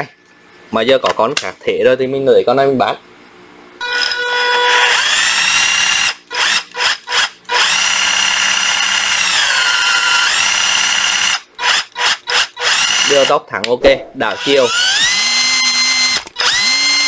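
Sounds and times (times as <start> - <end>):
cordless drill motor whining: 3.8 - 13.1, 14.3 - 17.0.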